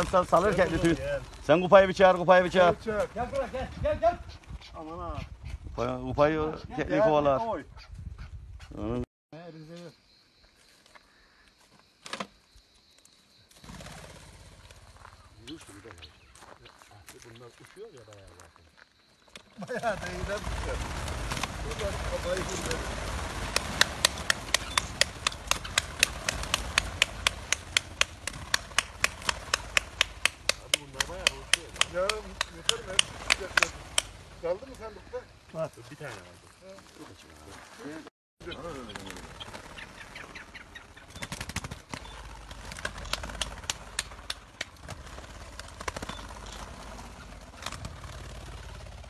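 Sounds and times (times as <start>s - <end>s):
whirring bird wingbeats: 13.5s - 15.4s, 19.6s - 35.3s, 38.5s - 49.0s
sharp flaps and knocks: 19.4s - 34.8s, 38.8s - 49.0s
steady sharp ticks: 20.3s - 35.3s, 41.0s - 46.6s.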